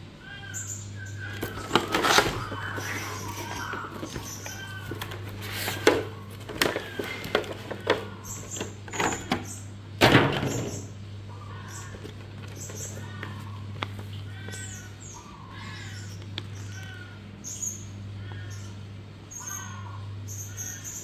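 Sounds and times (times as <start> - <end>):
steady low hum: 0.0 - 21.0
cardboard and plastic packaging rustling: 1.2 - 9.5, 11.8 - 15.0.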